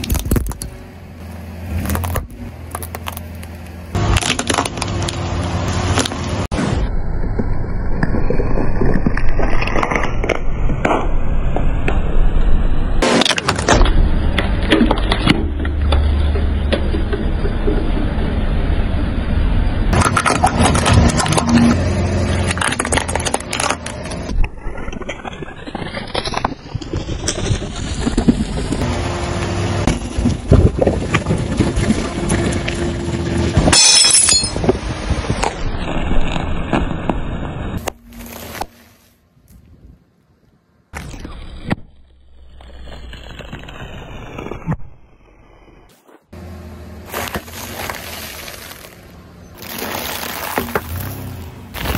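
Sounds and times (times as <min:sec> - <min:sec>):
objects crunching under tyre: 0:00.0 - 0:00.8, 0:01.6 - 0:06.5, 0:07.3 - 0:11.0, 0:19.9 - 0:39.6, 0:40.9 - 0:44.8, 0:45.9 - 0:51.9
low hum: 0:00.0 - 0:39.4
car low rumble: 0:00.0 - 0:51.9
sharp crack: 0:13.0 - 0:15.4, 0:47.1 - 0:51.9
tyre crunching snack packets: 0:47.0 - 0:51.9
plastic wrappers crackling: 0:47.1 - 0:51.9.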